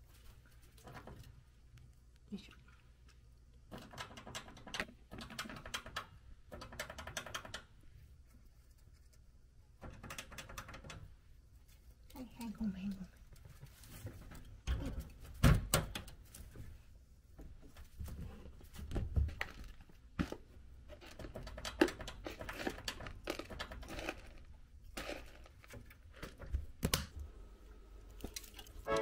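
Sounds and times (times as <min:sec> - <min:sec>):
guinea pig chewing hay: 0:07.4 - 0:10.8.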